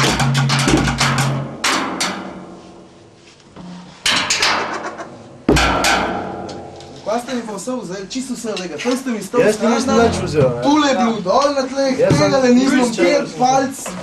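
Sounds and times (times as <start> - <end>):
sticks beating plastic barrel: 0.0 - 2.5
loud ringing drum hits: 5.5 - 6.8.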